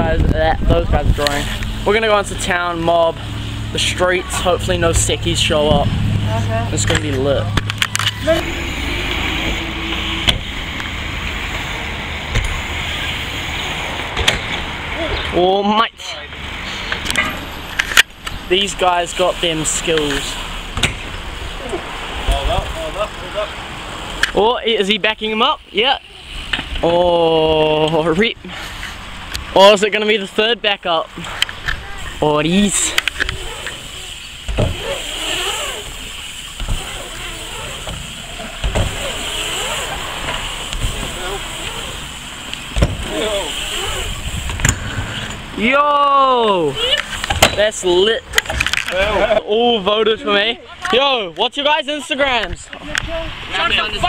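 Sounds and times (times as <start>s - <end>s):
bike thumping down a ramp: 12.3s - 12.6s, 33.0s - 45.4s
bike tyres rolling on ramp: 16.7s - 24.4s, 26.3s - 49.4s
faint voices: 31.2s - 42.3s, 42.9s - 44.5s
bike tyres rolling on plywood: 31.5s - 45.4s.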